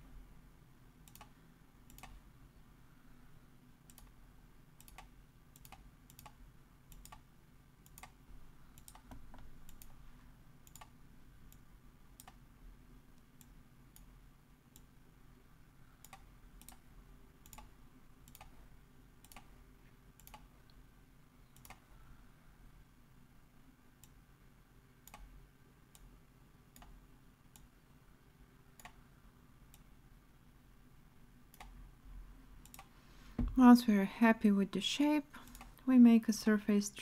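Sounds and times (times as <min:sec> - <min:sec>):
low steady hum: 0:00.0 - 0:37.0
computer mouse clicks: 0:01.0 - 0:02.2, 0:03.8 - 0:04.2, 0:04.8 - 0:10.0, 0:10.6 - 0:11.6, 0:12.2 - 0:12.4, 0:13.2 - 0:14.1, 0:16.0 - 0:16.8, 0:17.4 - 0:18.6, 0:19.2 - 0:19.5, 0:20.2 - 0:20.5, 0:21.5 - 0:21.8, 0:25.0 - 0:26.1, 0:26.7 - 0:27.7, 0:28.8 - 0:29.0, 0:31.5 - 0:31.8, 0:32.6 - 0:32.9, 0:35.4 - 0:35.8.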